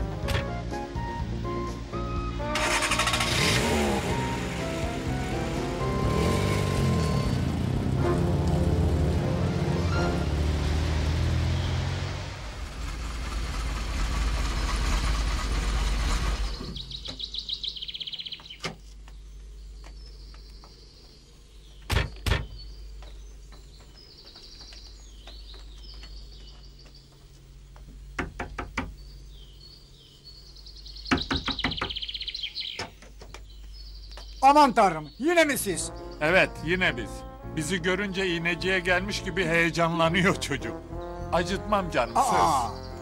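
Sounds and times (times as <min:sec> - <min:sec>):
small birds chirping: 0:16.2 - 0:43.0
knocks on wooden door: 0:28.2 - 0:29.0, 0:31.1 - 0:32.0.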